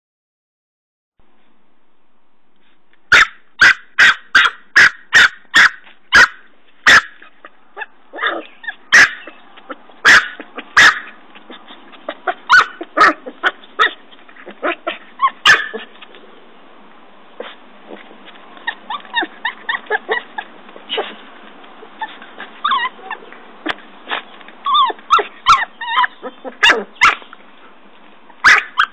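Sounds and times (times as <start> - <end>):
puppy barking in high yaps: 3.1 - 15.9, 18.6 - 21.2, 24.6 - 27.3, 28.4 - 28.9
paws scratching soil: 4.0 - 28.9.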